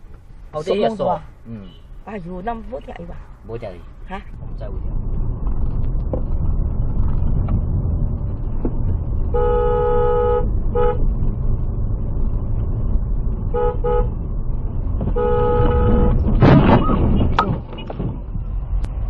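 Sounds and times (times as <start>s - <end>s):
engine and road rumble: 0.0s - 19.0s
car horn honking: 9.2s - 11.1s, 13.5s - 14.2s, 15.0s - 16.9s.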